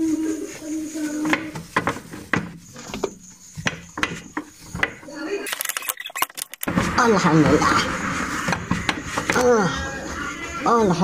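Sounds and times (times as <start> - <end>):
quick metal clicks: 5.5 - 6.7.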